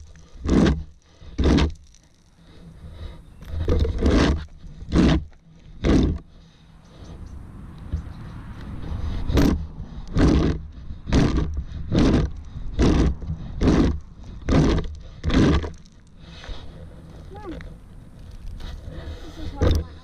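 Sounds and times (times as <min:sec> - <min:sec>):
wind rumble on microphone: 0:06.8 - 0:15.6
rake scraping across dry grass: 0:18.2 - 0:20.0.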